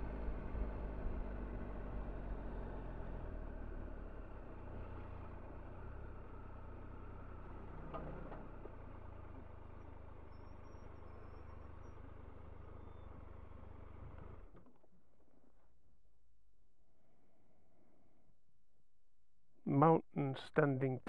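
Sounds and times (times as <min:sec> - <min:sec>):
motorcycle engine idling: 0:08.5 - 0:14.6.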